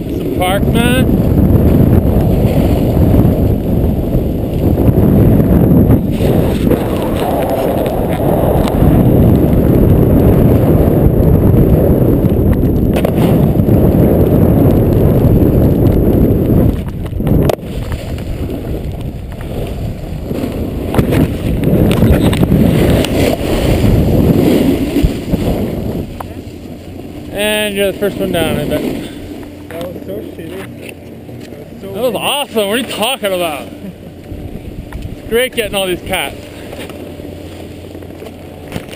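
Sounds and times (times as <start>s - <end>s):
snowboard scraping over snow: 0.0s - 29.4s
wind rushing over microphone: 0.0s - 38.9s.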